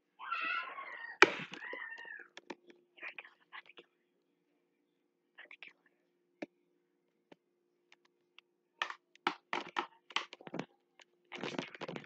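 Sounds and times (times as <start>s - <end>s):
faint steady hum: 0.0s - 8.8s.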